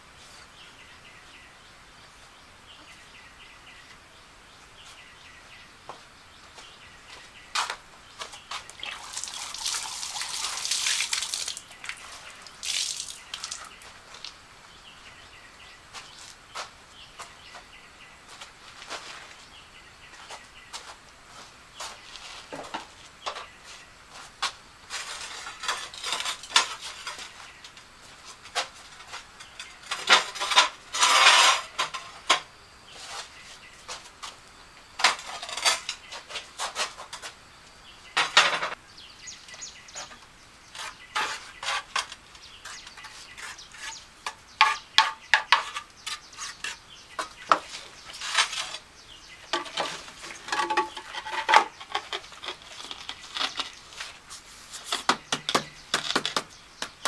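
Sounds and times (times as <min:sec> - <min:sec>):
trowel scraping on tile: 0:40.8 - 0:46.8, 0:47.5 - 0:48.9.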